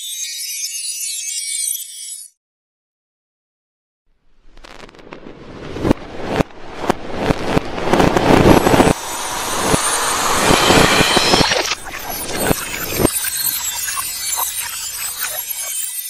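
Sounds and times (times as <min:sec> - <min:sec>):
fireworks bangs and crackles: 0:04.3 - 0:15.2.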